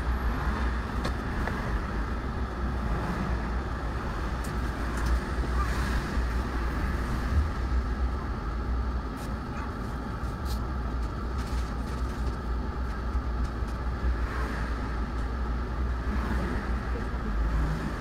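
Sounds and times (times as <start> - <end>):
cars passing by: 0.0 - 9.1, 13.8 - 18.0
bus engine idling: 0.0 - 18.0.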